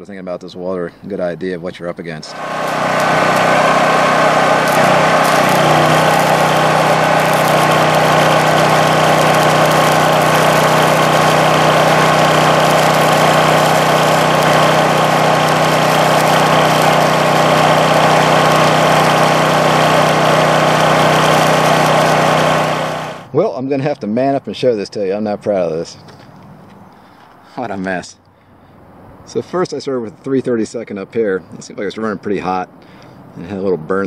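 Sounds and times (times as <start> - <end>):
generator humming: 2.3 - 23.3
welding arc crackling and sizzling: 2.3 - 23.3.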